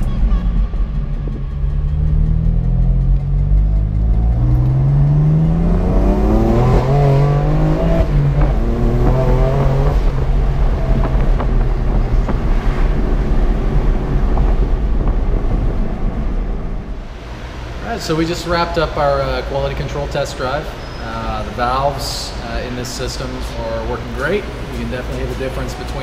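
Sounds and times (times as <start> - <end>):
car engine accelerating: 0.0 - 18.5.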